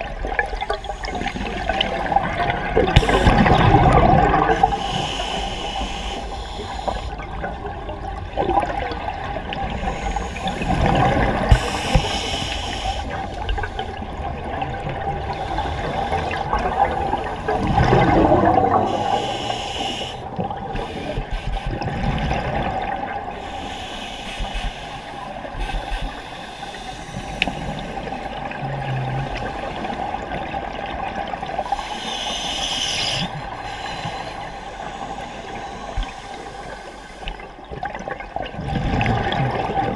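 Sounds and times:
faint steady hum: 0.0 - 39.7
diver exhaling bubbles underwater: 1.1 - 4.7, 15.7 - 19.2, 28.4 - 30.5, 38.6 - 39.9
regulator hiss: 3.0 - 3.5, 4.5 - 7.2, 9.7 - 14.0, 18.8 - 20.2, 23.4 - 28.3, 31.7 - 37.4.

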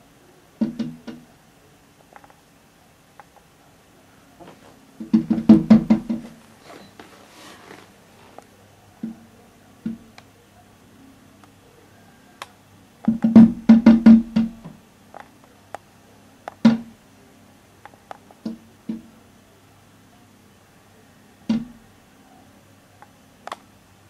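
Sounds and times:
seagull beak knocking on window: 0.6 - 1.2, 5.0 - 6.4, 13.1 - 14.8, 21.5 - 21.8.

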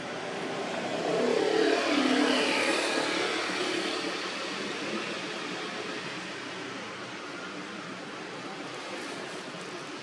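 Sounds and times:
vehicle engine passing by: 0.0 - 6.2.

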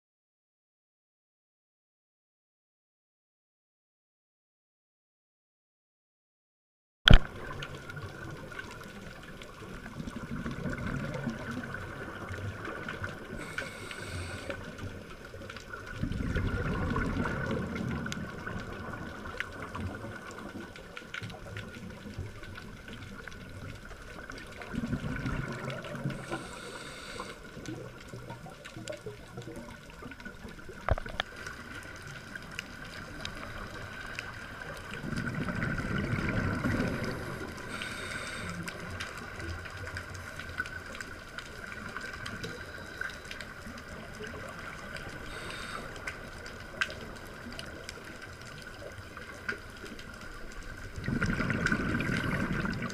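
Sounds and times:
exhaled bubbles rumbling: 7.1 - 52.9
underwater watery murmur: 7.1 - 52.9
scuba regulator breathing: 13.3 - 14.9, 26.0 - 27.7, 36.9 - 39.1, 42.2 - 43.6, 45.0 - 46.5.

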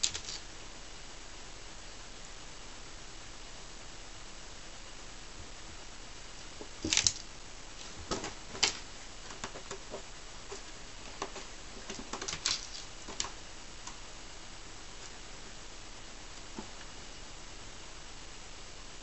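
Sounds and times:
kitten claws scratching floor: 0.0 - 0.5, 6.6 - 13.4.

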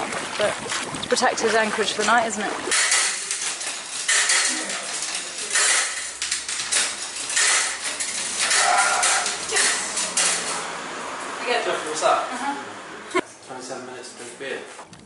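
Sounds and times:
washing machine handling clatter: 2.7 - 10.7.

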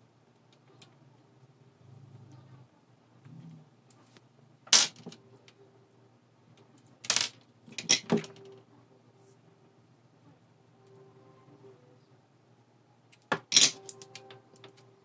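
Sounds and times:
hand tools clinking: 13.4 - 14.2.

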